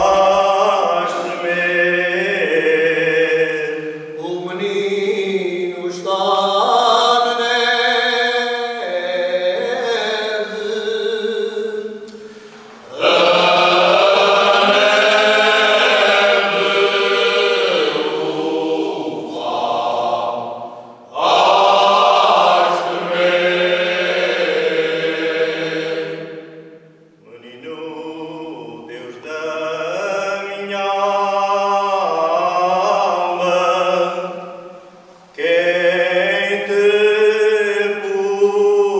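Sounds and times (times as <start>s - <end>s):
men's choir singing unaccompanied: 0.0s - 38.9s.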